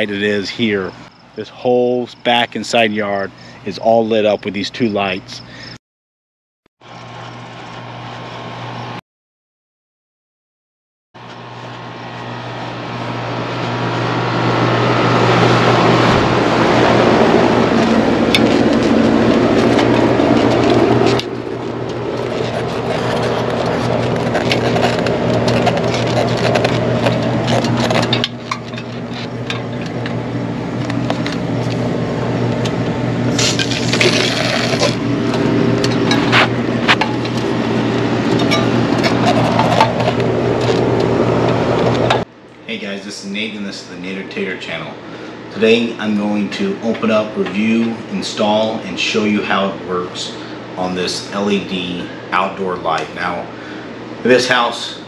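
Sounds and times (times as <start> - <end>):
low machine hum: 11.2 - 55.0.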